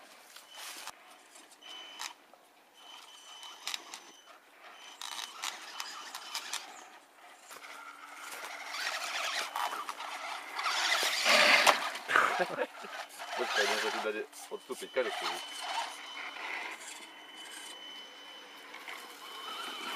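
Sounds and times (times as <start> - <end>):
rc car motor whine: 2.8 - 19.9
tyres scraping on gravel: 3.4 - 17.8, 18.6 - 19.9.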